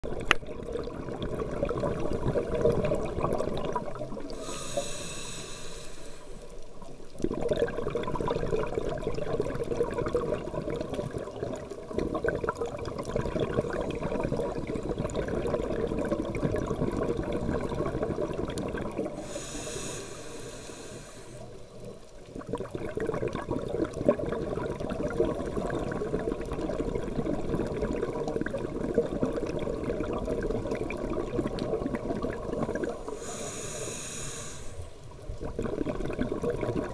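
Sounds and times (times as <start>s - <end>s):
regulator inhalation hiss: 4.3s - 6.6s, 19.2s - 21.6s, 33.0s - 35.0s
bubbly exhalation: 7.2s - 19.3s, 22.4s - 33.0s, 35.4s - 36.9s.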